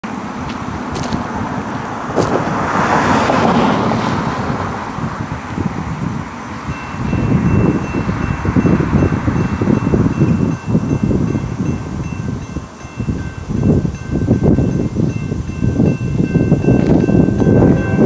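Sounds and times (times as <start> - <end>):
wind buffeting microphone: 0.0 - 18.0
car driving past: 0.8 - 5.7
electronic crossing bell ringing: 6.7 - 18.0.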